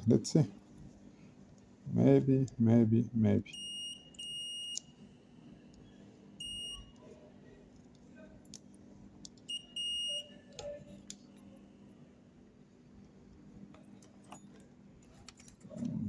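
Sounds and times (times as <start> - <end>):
multimeter continuity beeps: 3.5 - 5.0, 6.4 - 7.0, 9.4 - 11.5.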